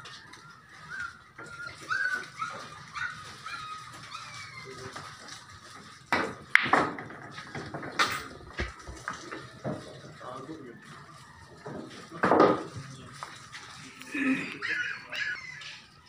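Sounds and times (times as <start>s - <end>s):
dog whimpering and yelping: 0.8s - 4.9s, 14.6s - 16.0s
billiard balls colliding: 6.1s - 10.0s, 11.6s - 12.8s
cue striking ball: 6.2s - 9.4s.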